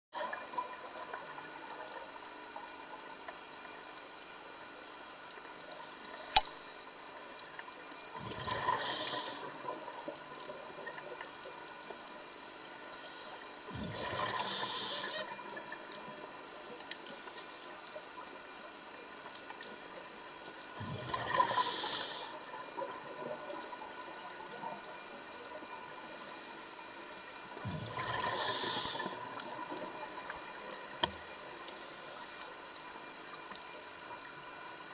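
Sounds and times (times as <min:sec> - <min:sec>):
sharp click: 0:06.3 - 0:06.6
underwater bubbles rushing: 0:13.7 - 0:16.5, 0:27.6 - 0:31.5.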